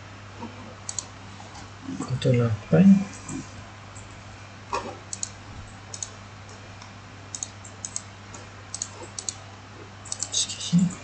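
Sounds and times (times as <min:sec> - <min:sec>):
low electrical hum: 0:00.0 - 0:11.0
mouse and keyboard clicks: 0:05.1 - 0:06.1, 0:08.7 - 0:09.4.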